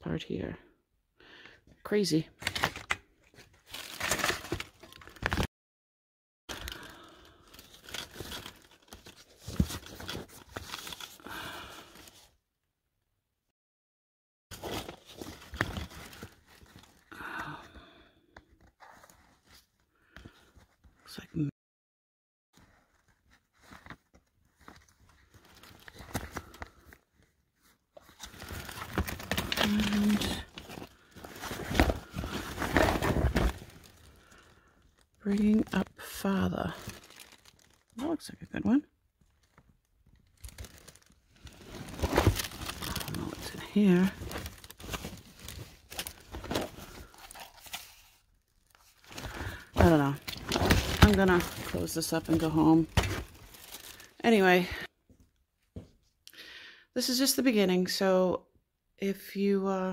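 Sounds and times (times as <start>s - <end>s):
leather bag and papers rustling: 6.5s - 12.3s, 14.5s - 17.1s, 22.6s - 38.1s, 39.2s - 54.2s.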